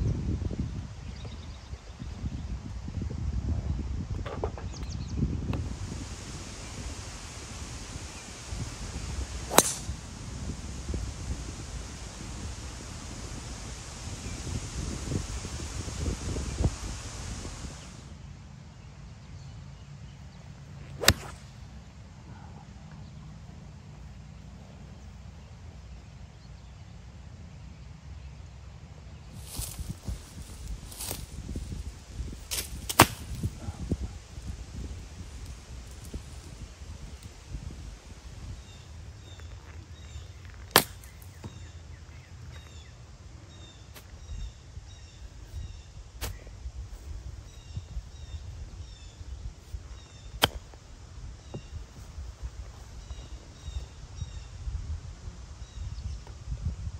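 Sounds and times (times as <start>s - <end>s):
golf club striking ball: 9.5s - 10.0s, 20.9s - 21.5s, 32.5s - 33.4s, 40.7s - 41.6s, 50.4s - 50.8s
birds chirping: 32.7s - 54.5s.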